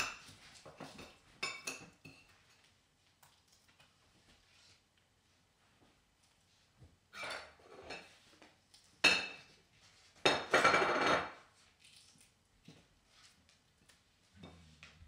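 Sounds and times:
utensils and dishes clattering: 0.0s - 2.4s, 7.2s - 8.2s, 10.2s - 11.5s.

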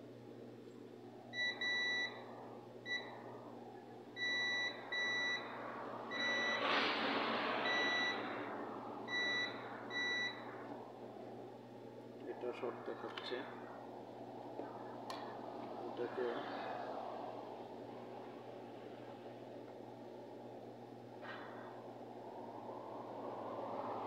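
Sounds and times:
multimeter continuity buzzer beeping: 1.4s - 2.2s, 2.9s - 3.1s, 4.2s - 5.5s.

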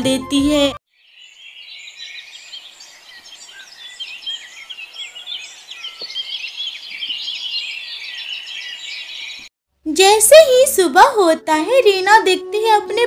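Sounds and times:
small birds chirping: 0.9s - 9.5s.

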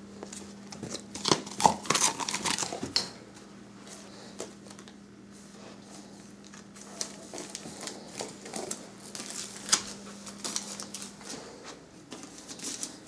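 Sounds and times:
wrapping paper crinkling and tearing: 6.4s - 11.4s, 12.2s - 13.0s.

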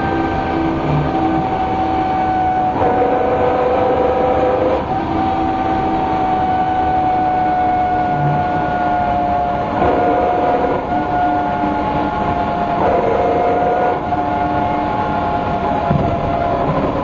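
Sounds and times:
bus differential whine: 0.0s - 17.0s
low diesel engine rumble: 0.0s - 17.0s.

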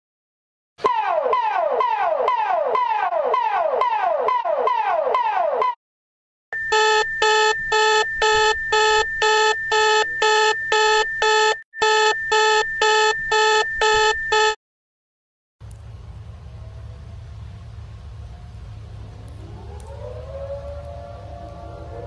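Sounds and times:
pulsing beep: 6.6s - 14.6s.

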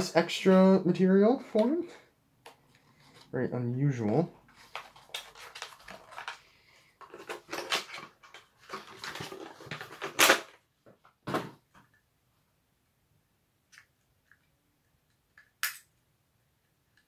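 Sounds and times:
packaging crinkling and clattering: 4.5s - 10.6s.

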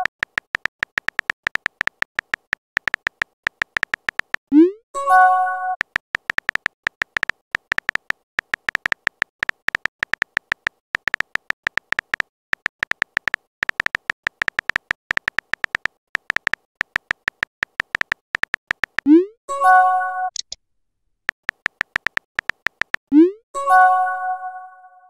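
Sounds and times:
keyboard tap clicks: 0.0s - 4.4s, 5.8s - 19.1s, 21.3s - 23.0s.

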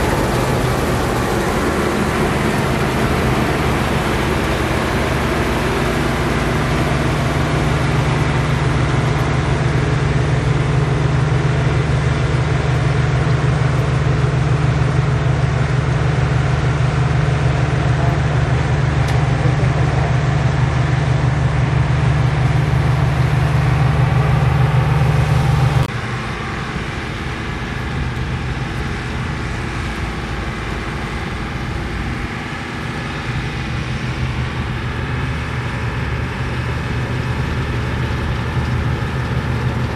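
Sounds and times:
threshing machinery clatter: 0.0s - 20.9s, 33.7s - 39.9s
combine harvester diesel engine: 0.0s - 39.9s.

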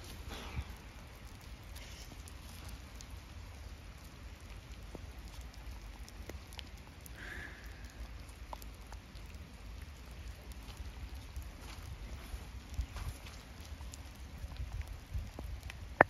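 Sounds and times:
light rain pattering: 0.0s - 16.0s
wind rumble on microphone: 10.0s - 16.0s.

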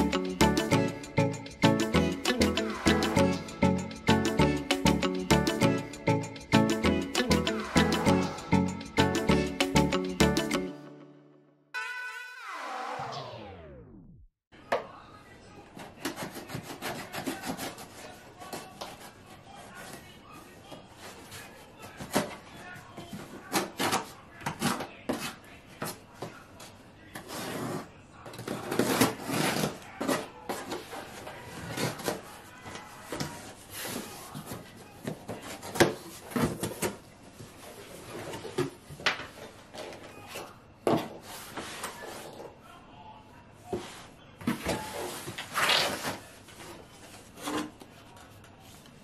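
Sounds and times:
cardboard scraping and rustling: 44.0s - 48.0s.

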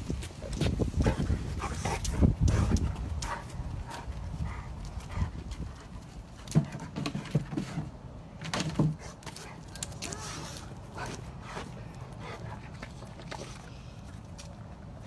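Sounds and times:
dog paws thumping on wood: 0.0s - 11.9s.

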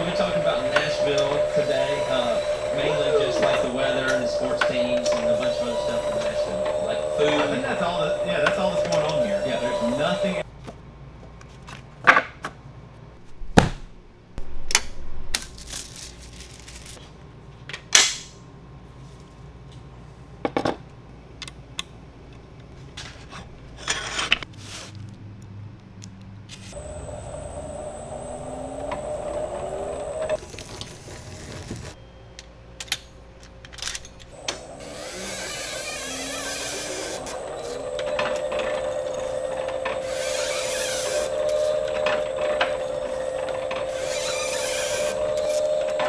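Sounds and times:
machine whirring: 0.0s - 10.4s, 26.7s - 32.0s, 34.2s - 46.0s.

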